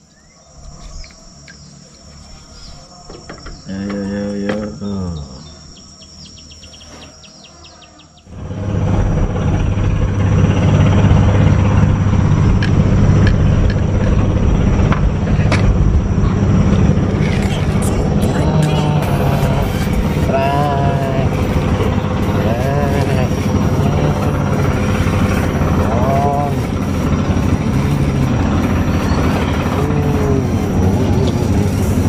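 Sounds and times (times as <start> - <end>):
engine running: 0.0 - 32.0
insect drone: 0.0 - 32.0
short falling whine: 8.3 - 32.0.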